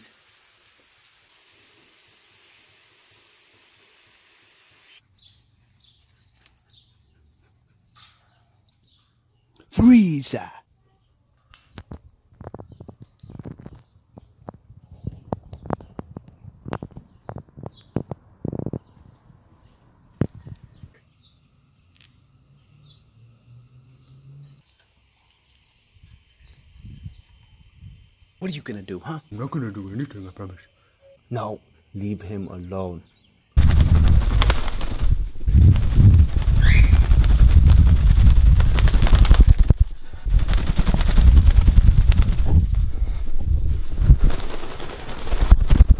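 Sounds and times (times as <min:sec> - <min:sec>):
faint bird chirps: 0:24.0 - 0:33.5, 0:36.5 - 0:37.1
parakeet wings fluttering: 0:33.6 - 0:45.9.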